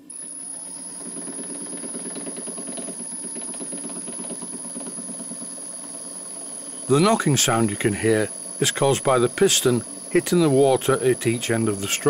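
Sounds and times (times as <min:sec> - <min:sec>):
model steam engine knocking: 0:00.9 - 0:05.5.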